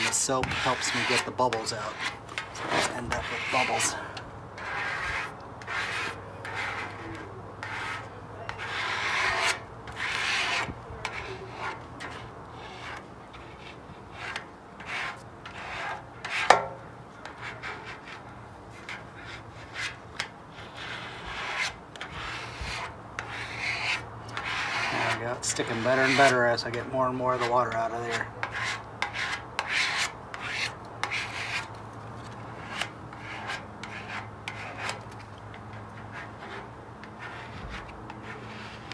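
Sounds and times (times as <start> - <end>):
plastic card squeegee rubbing: 0.0 - 4.0.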